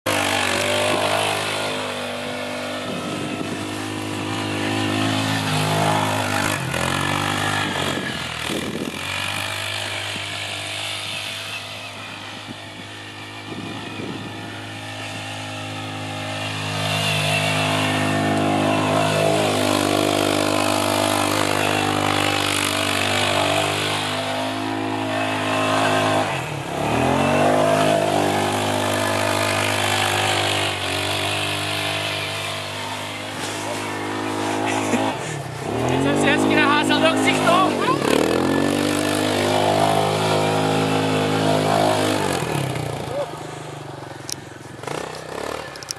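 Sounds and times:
quad bike engine revving: 0:00.0 - 0:45.9.

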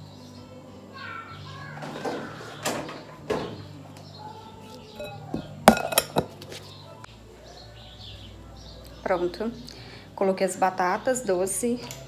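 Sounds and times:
glassy clinks: 0:05.0 - 0:06.4.

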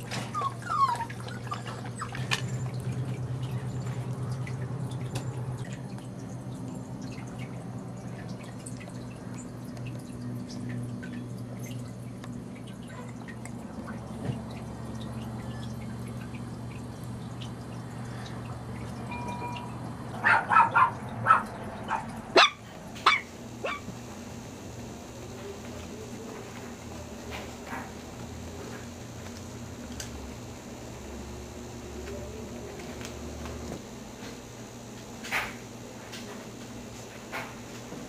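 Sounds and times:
steady low hum: 0:00.0 - 0:38.0
water dripping and trickling: 0:00.1 - 0:22.7.

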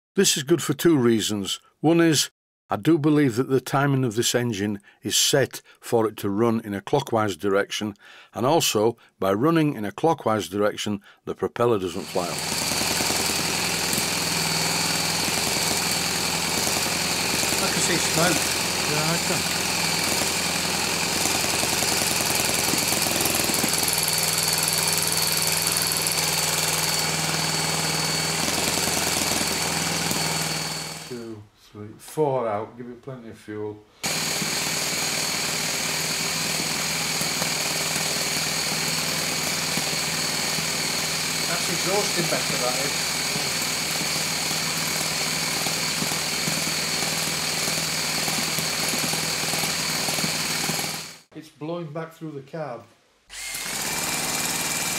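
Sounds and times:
electric starter motor whining: 0:12.0 - 0:31.2, 0:34.0 - 0:51.3, 0:53.3 - 0:54.9
model engine chuffing: 0:12.0 - 0:31.2, 0:34.0 - 0:51.1.

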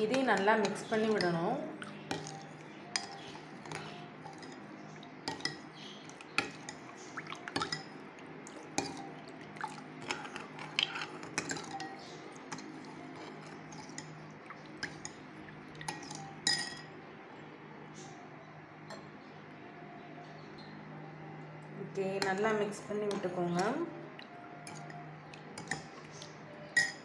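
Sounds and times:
spoon clinking against glass: 0:01.9 - 0:15.2, 0:15.8 - 0:16.9, 0:24.6 - 0:27.0.

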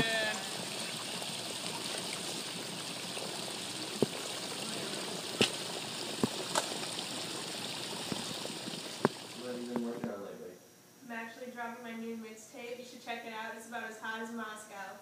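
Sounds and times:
fountain water splashing: 0:00.0 - 0:09.8.

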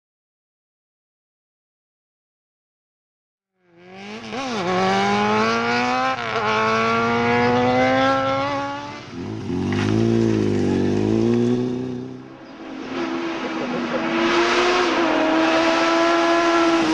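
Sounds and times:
motorcycle engine accelerating: 0:03.6 - 0:16.9.

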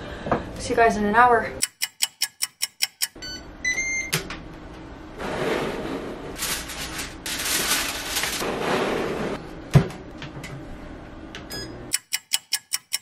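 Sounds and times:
foil rustling: 0:06.4 - 0:09.0.

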